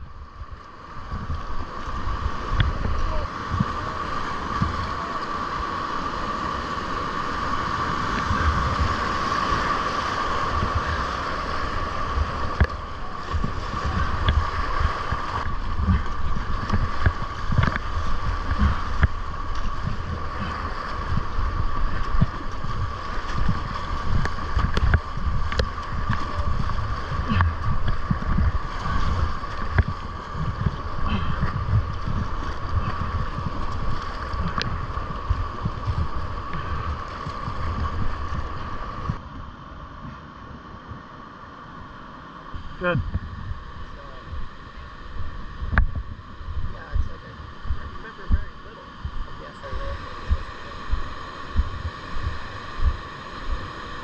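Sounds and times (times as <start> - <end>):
wind rumbling on microphone: 0.0 - 54.0
whitewater rapids rushing: 0.8 - 39.2.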